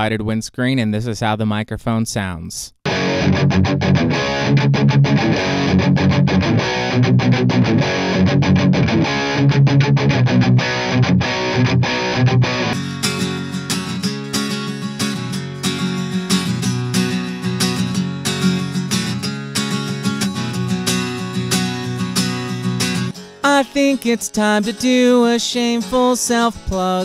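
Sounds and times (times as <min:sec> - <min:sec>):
distorted electric guitar: 0:02.8 - 0:23.8
acoustic guitar strummed chords: 0:02.8 - 0:27.0.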